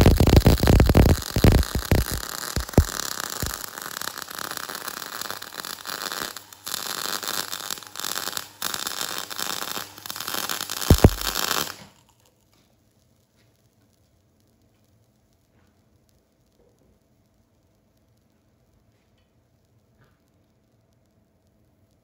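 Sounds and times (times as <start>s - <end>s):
welding arc crackling: 0.0s - 12.3s.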